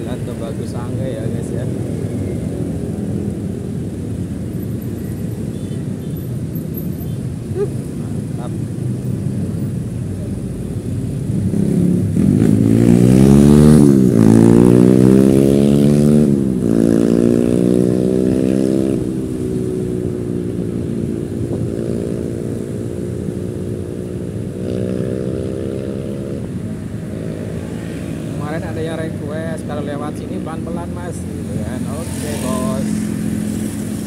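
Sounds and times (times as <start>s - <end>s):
motorcycle engine accelerating: 11.3s - 28.6s.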